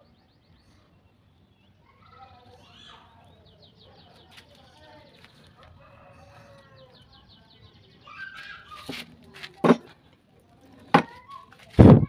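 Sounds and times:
wood knocking on workbench: 9.6s - 9.8s, 10.9s - 11.1s.

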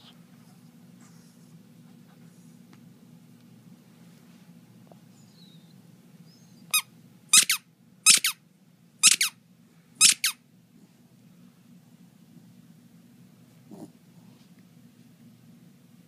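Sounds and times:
squeaky toy ball squeaking: 6.7s - 8.4s, 9.0s - 9.4s, 10.0s - 10.4s.

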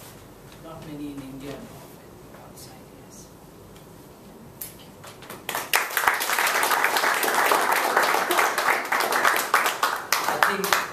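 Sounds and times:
audience applauding: 5.5s - 10.9s.

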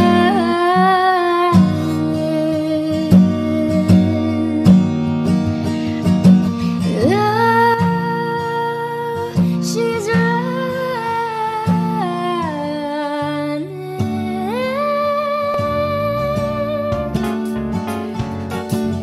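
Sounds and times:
plucked guitar: 0.0s - 19.0s
person singing slow song: 13.6s - 17.3s.

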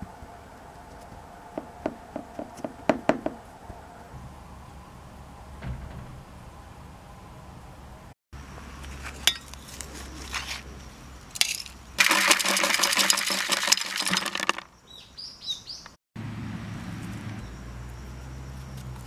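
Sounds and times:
hand crumbling dry soil: 8.8s - 10.7s
bird chirps: 14.7s - 16.0s.

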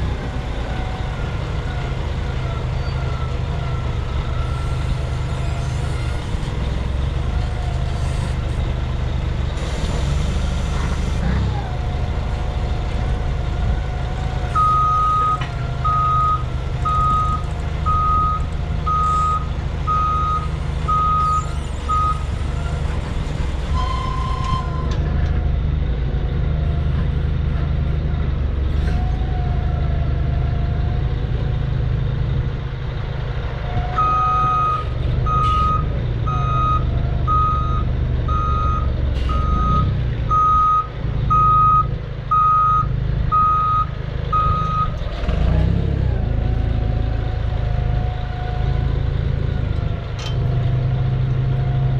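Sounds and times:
forklift engine running: 0.0s - 51.9s
reversing alarm beeping: 14.6s - 22.3s, 34.0s - 45.0s.

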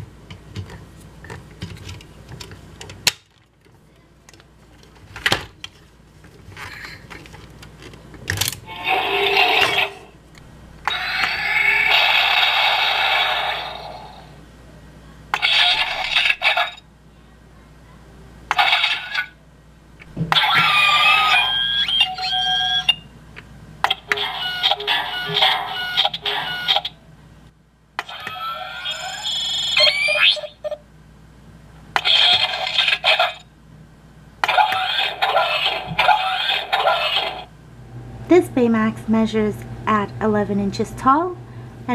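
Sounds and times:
tinny toy beeping: 8.6s - 10.1s, 20.4s - 23.0s, 24.0s - 27.0s, 28.0s - 30.8s
toy electronic sound effects: 8.7s - 10.1s, 10.9s - 14.3s, 15.4s - 16.8s, 18.5s - 19.4s, 20.3s - 23.0s, 23.9s - 27.0s, 28.0s - 30.8s, 32.0s - 33.4s, 34.4s - 37.5s.

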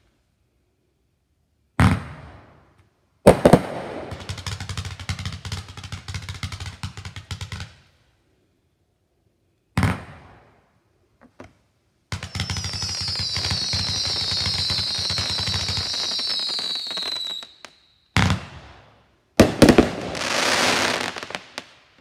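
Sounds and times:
whistling fireworks: 3.2s - 8.0s, 12.1s - 22.0s
fireworks crackling: 3.3s - 7.9s, 12.1s - 18.8s, 19.4s - 22.0s
firework bang: 19.4s - 21.4s
small firework pops: 19.4s - 22.0s.

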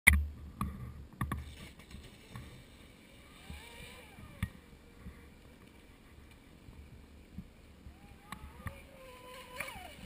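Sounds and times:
electric motor whining: 3.1s - 5.4s.

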